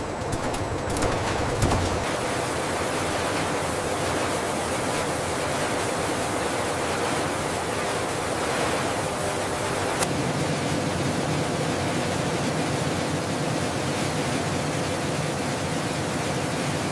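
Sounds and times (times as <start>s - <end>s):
conveyors rushing: 0.0s - 10.0s
faint hum: 0.0s - 12.8s.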